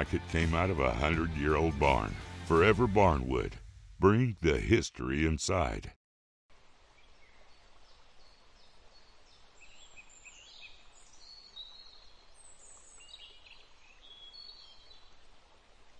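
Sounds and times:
soft steady hiss: 0:06.5 - 0:15.9
small birds chirping: 0:07.0 - 0:15.2.

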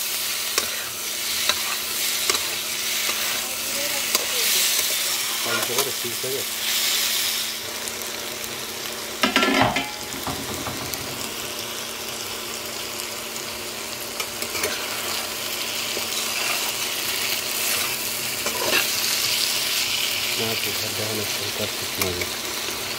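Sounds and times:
spatula stirring in pan: 0:00.0 - 0:06.0, 0:14.2 - 0:20.2
vegetables sizzling in oil: 0:00.0 - 0:22.9.

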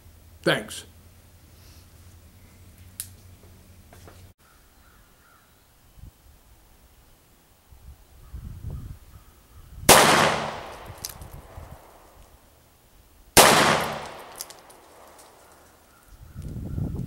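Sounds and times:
revolver shots: 0:09.9 - 0:11.2.

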